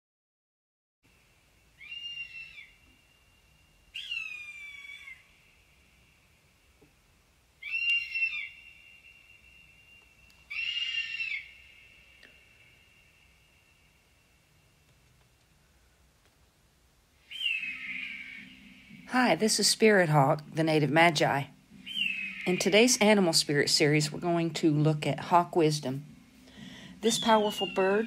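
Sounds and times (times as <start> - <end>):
faint steady high tone: 1.1 - 16.1, 17.2 - 28.0
hawk calling: 1.8 - 3.0, 3.9 - 5.6, 7.6 - 13.2, 17.2 - 20.1, 21.4 - 24.2, 26.2 - 28.0.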